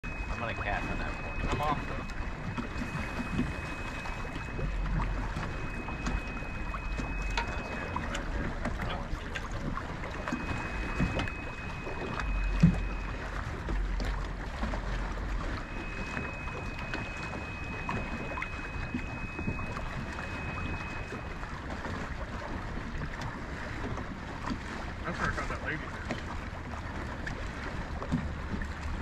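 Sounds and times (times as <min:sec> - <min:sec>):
thin high whine: 0:00.0 - 0:09.0, 0:10.0 - 0:13.9, 0:15.4 - 0:21.6
water against boat hull: 0:00.0 - 0:29.0.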